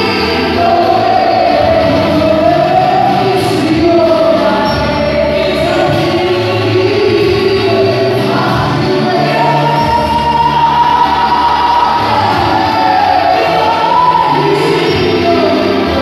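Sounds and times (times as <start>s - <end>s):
group singing worship song: 0.0s - 16.0s.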